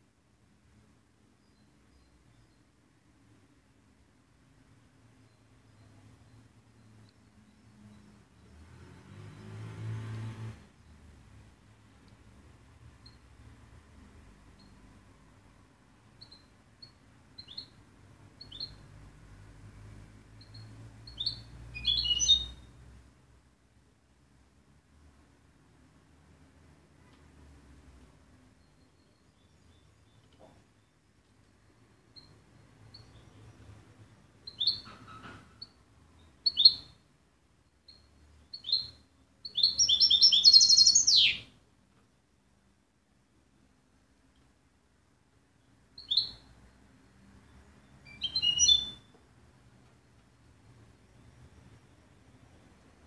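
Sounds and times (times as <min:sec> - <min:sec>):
goldfinch chirping and twittering: 0:18.4 - 0:18.8, 0:20.4 - 0:22.6, 0:34.5 - 0:35.8, 0:36.4 - 0:36.9, 0:37.9 - 0:41.5, 0:46.0 - 0:46.4, 0:48.1 - 0:49.1.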